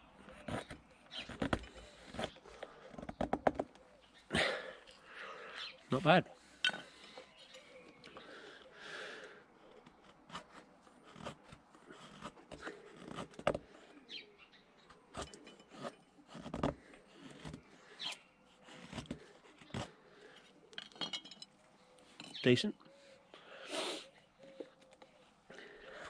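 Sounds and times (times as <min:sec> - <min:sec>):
knife scraping wooden stick: 0:15.1 - 0:19.9.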